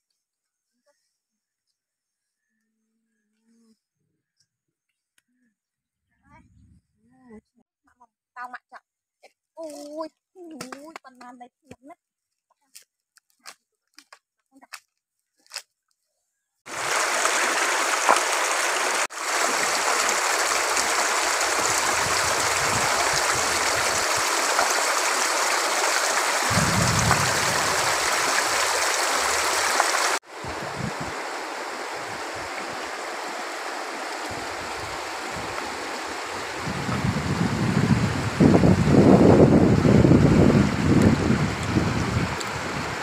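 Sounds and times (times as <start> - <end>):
rocky river rushing: 16.7 - 36.6.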